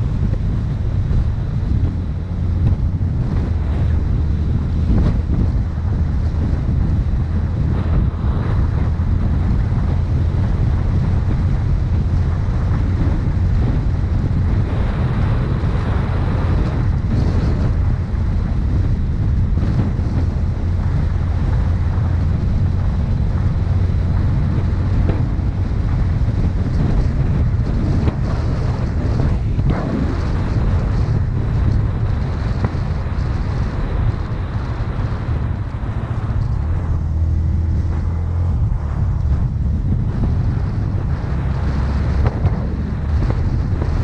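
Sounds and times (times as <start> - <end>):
wind buffeting microphone: 0.0 - 44.0.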